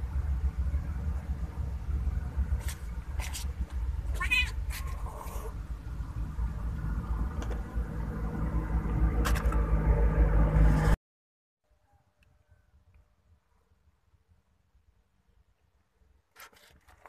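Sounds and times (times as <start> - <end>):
steady low rumble: 0.0 - 11.0
cat meowing: 4.1 - 5.5.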